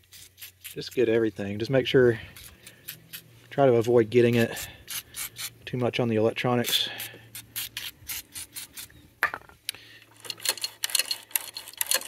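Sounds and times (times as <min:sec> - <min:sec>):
metal mechanism clicking and rattling: 0:10.1 - 0:12.0.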